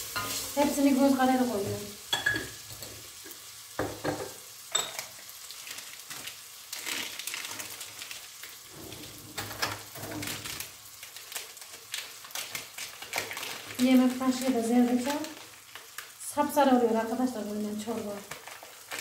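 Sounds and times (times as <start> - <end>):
soup base sizzling: 0.0 - 19.0.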